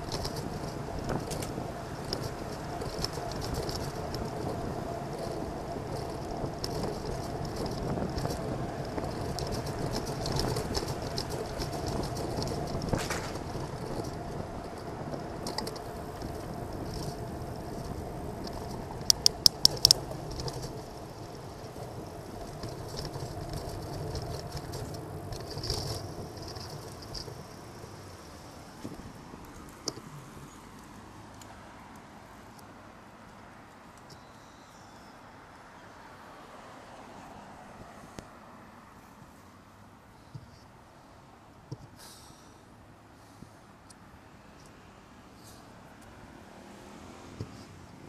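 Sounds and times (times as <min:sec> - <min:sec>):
car traffic: 0:00.0 - 0:48.0
road and wind rumble: 0:00.0 - 0:48.0
sharp clicks: 0:17.8 - 0:20.8.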